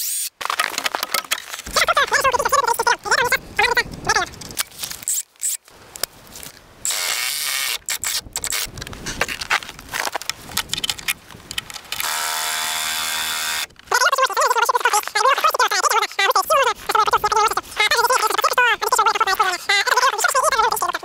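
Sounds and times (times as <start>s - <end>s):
cordless drill driving screws: 4.8s - 5.6s, 6.8s - 8.7s, 11.9s - 13.7s.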